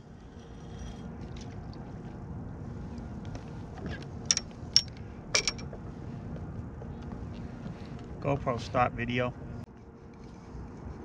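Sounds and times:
sharp clicks and knocks: 0:04.3 - 0:05.7.

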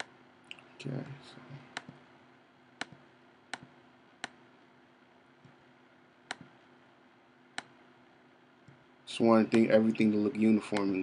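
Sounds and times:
computer mouse clicks: 0:00.0 - 0:00.6, 0:01.7 - 0:02.0, 0:02.8 - 0:04.4, 0:06.3 - 0:06.6
faint steady hum: 0:00.0 - 0:11.0.

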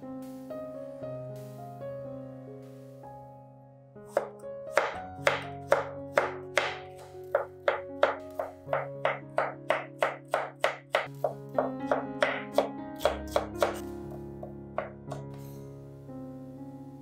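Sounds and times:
background music: 0:00.0 - 0:17.0
knife chopping on wooden board: 0:04.1 - 0:15.4.

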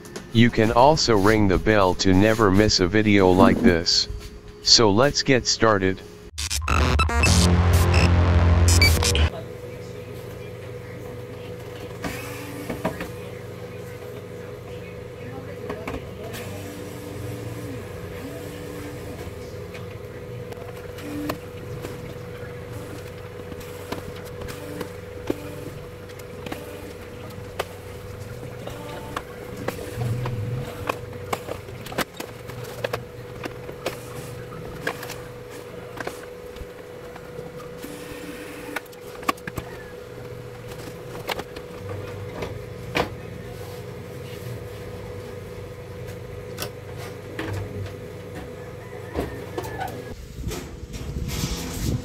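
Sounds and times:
background hum: 0:00.2 - 0:06.3, 0:20.6 - 0:37.7.

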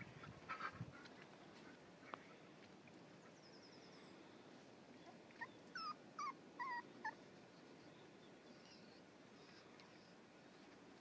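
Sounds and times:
puppy whimpering: 0:05.0 - 0:07.2.

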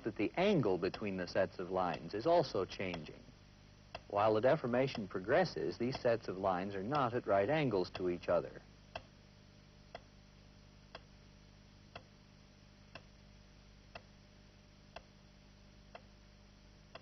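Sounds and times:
faint low hum: 0:00.0 - 0:17.0
timer ticking: 0:00.8 - 0:03.2, 0:05.9 - 0:06.2, 0:07.9 - 0:08.2, 0:08.9 - 0:09.1, 0:09.9 - 0:10.1, 0:10.9 - 0:11.1, 0:11.9 - 0:12.1, 0:12.9 - 0:13.1, 0:13.9 - 0:14.1, 0:14.9 - 0:15.1.

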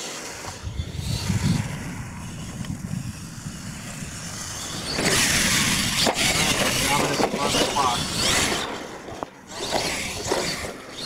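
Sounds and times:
radio-controlled truck rumbling: 0:00.0 - 0:11.0.

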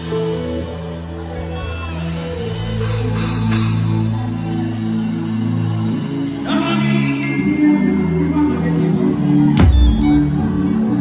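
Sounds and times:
worship band music: 0:00.0 - 0:11.0
person singing: 0:06.2 - 0:10.9.

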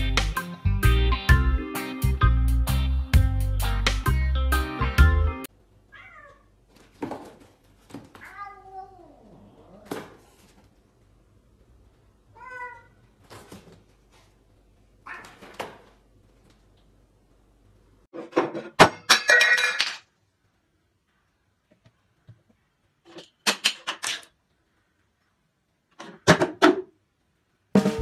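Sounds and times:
cat crying: 0:05.9 - 0:06.5, 0:08.2 - 0:10.0, 0:12.3 - 0:13.0, 0:15.0 - 0:15.5
cat meowing: 0:05.9 - 0:06.5, 0:08.2 - 0:10.0, 0:12.3 - 0:13.0, 0:15.0 - 0:15.6
thumps and scuffles: 0:06.7 - 0:08.3.

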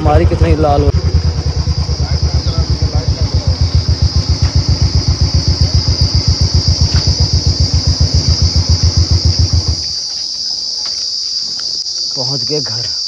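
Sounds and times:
motorcycle engine thumping: 0:00.0 - 0:10.0
crickets chirping: 0:00.0 - 0:13.0.

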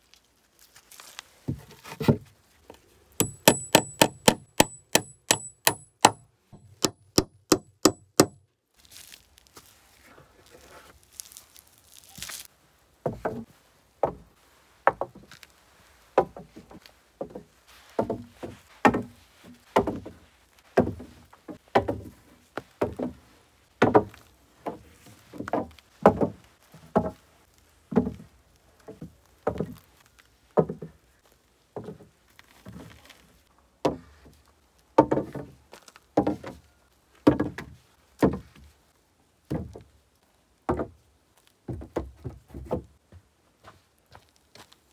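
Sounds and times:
hollow wooden log knocks: 0:03.2 - 0:08.4, 0:13.0 - 0:15.2, 0:16.2 - 0:17.4, 0:18.0 - 0:19.2, 0:19.8 - 0:20.2, 0:20.8 - 0:22.2, 0:25.4 - 0:27.2, 0:35.0 - 0:35.5, 0:40.7 - 0:41.0.

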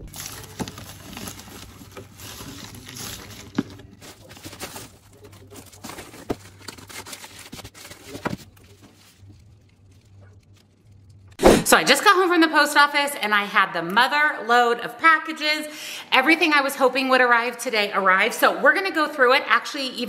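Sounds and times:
envelopes crinkling and rustling: 0:00.0 - 0:11.2.

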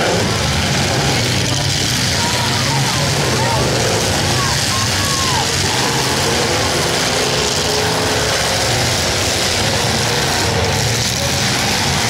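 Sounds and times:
many car engines revving: 0:00.0 - 0:12.0.

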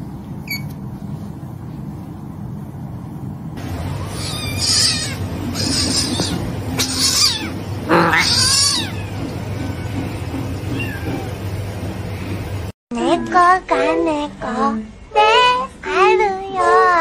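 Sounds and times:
steady low hum: 0:00.0 - 0:12.7
kitten mewing: 0:04.0 - 0:10.0.

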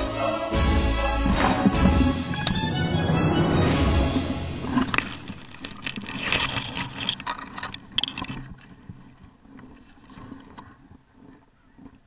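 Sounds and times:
camera handling scrapes and clicks: 0:04.8 - 0:08.4.

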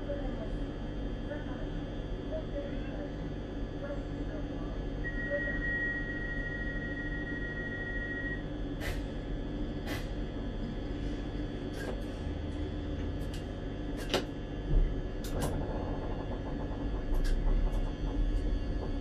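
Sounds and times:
train running rumble: 0:14.7 - 0:19.0
sharp clicks and knocks: 0:15.2 - 0:19.0
steady high tone: 0:15.3 - 0:19.0.

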